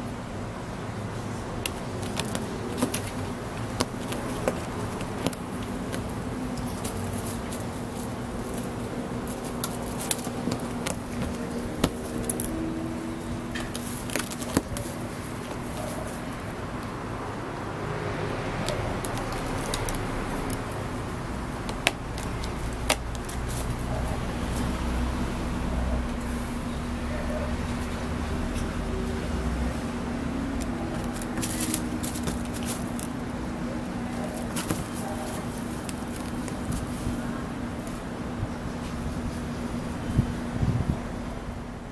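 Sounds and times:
low background hum: 0.0 - 41.9
claws scratching on concrete: 1.6 - 12.8, 18.6 - 20.8, 30.6 - 33.2.

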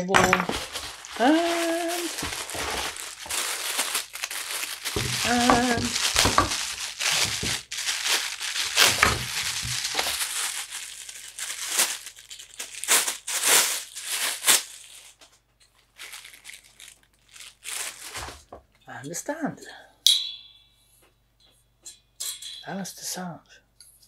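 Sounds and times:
plastic wrapping crinkling: 0.0 - 18.8.

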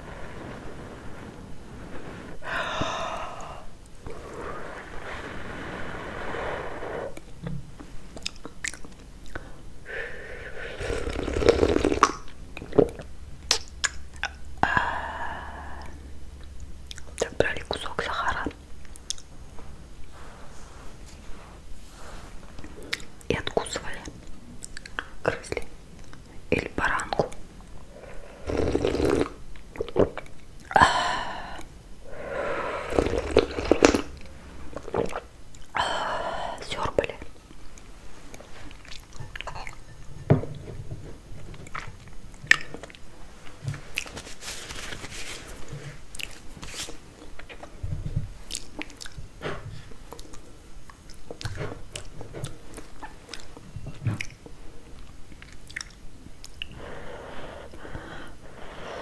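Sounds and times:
slurping tea: 4.0 - 7.3, 10.4 - 12.3, 27.9 - 29.4, 32.1 - 35.3
mouth clicks and swallows: 7.0 - 9.6, 48.4 - 49.2, 49.8 - 56.9.

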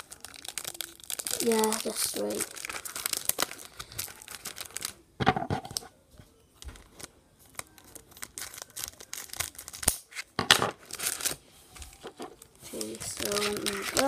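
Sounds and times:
foil wrappers crinkling: 0.0 - 5.0, 6.6 - 10.2, 10.8 - 14.0.

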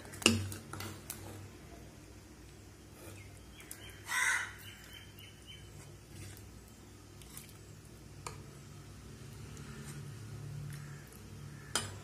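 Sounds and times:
crow cawing: 4.0 - 4.9, 10.8 - 11.8.

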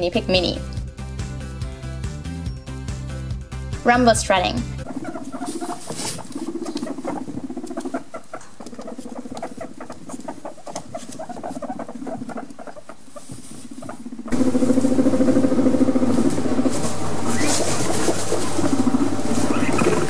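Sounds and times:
guinea pig rumbling: 3.9 - 20.0
small ticking sounds: 4.8 - 16.0.

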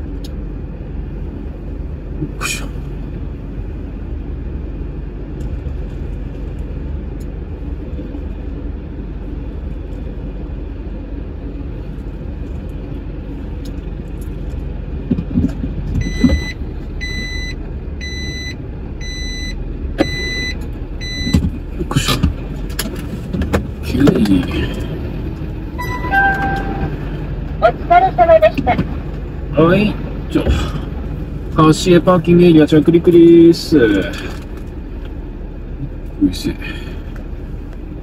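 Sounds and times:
truck diesel engine rumbling: 0.0 - 38.0
reversing alarm beeping: 16.0 - 21.4, 25.8 - 27.2.

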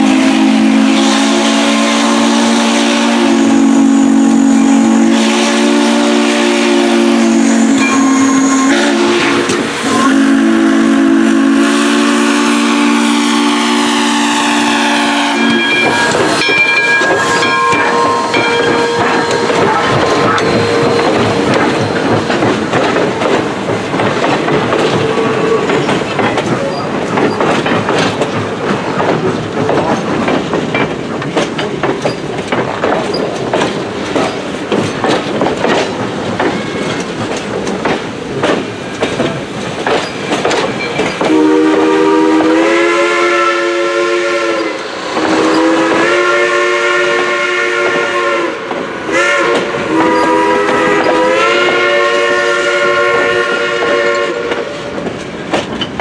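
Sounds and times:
steam locomotive whistle: 0.0 - 23.3, 41.1 - 55.1
train wheels clacking over rail joints: 4.4 - 10.5, 14.4 - 56.0.

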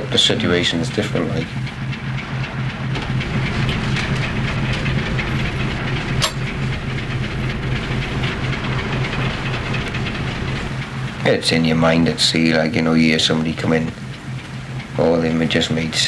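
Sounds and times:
diesel engine throbbing: 0.0 - 16.0.

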